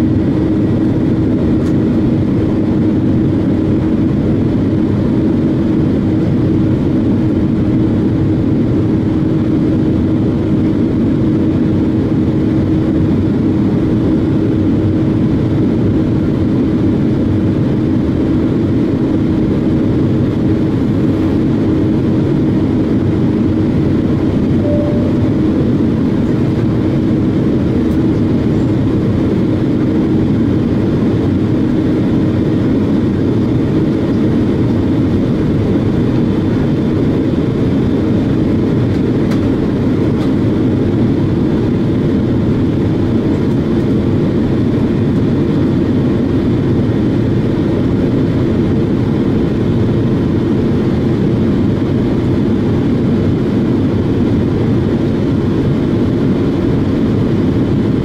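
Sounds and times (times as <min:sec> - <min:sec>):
airliner engines droning: 0:00.0 - 0:58.0
low steady hum: 0:23.8 - 0:30.8.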